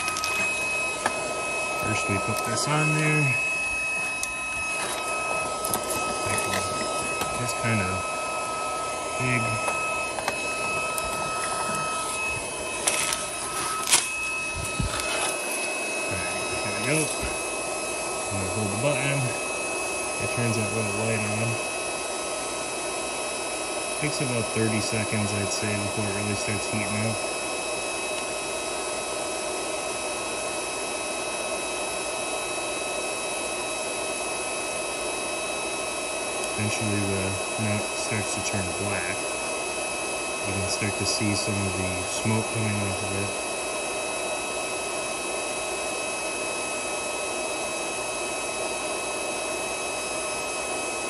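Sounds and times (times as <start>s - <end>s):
mechanical whirring with whine: 0.0s - 22.1s
induction heater fan noise: 0.0s - 51.0s.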